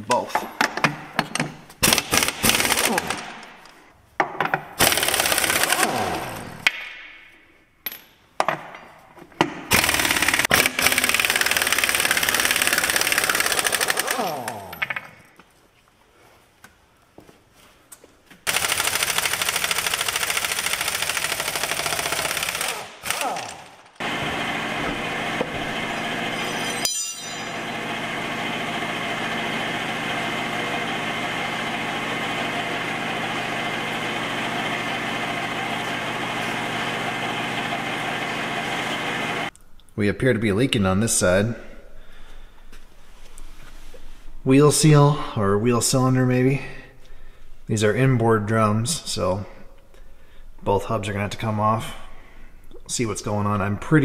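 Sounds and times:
impact wrench rattling bursts: 0.8s - 3.8s, 4.8s - 6.6s, 9.6s - 15.2s, 18.4s - 26.6s
engine-like running sound: 27.5s - 39.5s.

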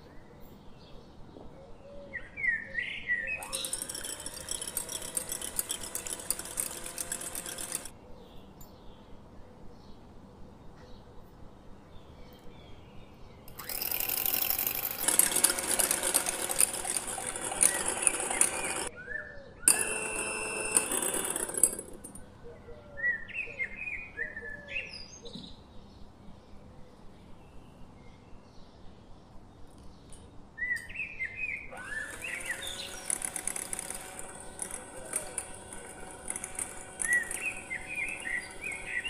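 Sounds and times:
electric hand mixer whisking: 3.5s - 7.9s, 13.6s - 18.9s, 31.8s - 39.0s
birds chirping: 22.2s - 39.0s.

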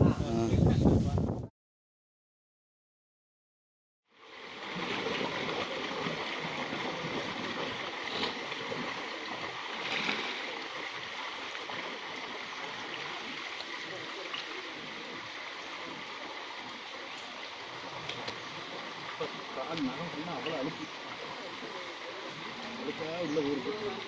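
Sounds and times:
stream water pouring over weir: 4.2s - 24.0s
person swimming splashes: 4.3s - 23.0s.

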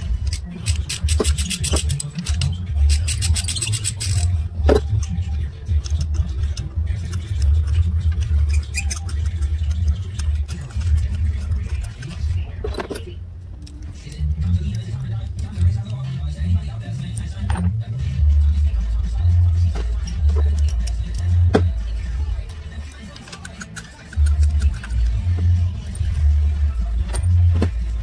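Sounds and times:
ratchet wrench clicking: 0.2s - 4.3s, 20.0s - 21.4s, 22.9s - 25.2s.

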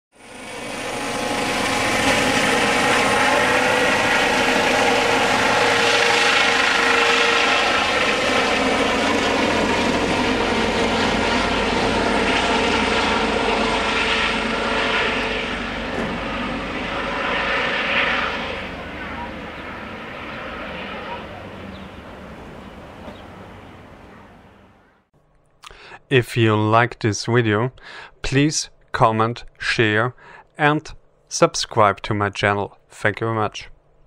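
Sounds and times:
helicopter flying overhead: 0.1s - 25.1s.

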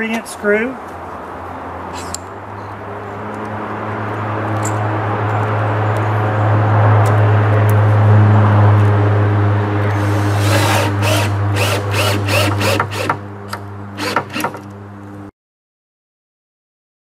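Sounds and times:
cordless drill motor: 9.9s - 13.2s, 14.0s - 14.6s.

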